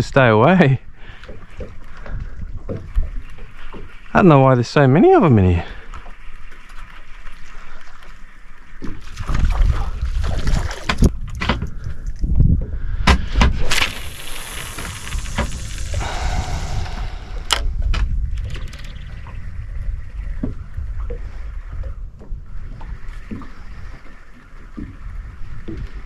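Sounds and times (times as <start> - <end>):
wind rumble on microphone: 0.0 - 4.2, 8.8 - 26.0
fishing line hissing off reel: 13.6 - 17.6
sharp click: 17.4 - 17.7.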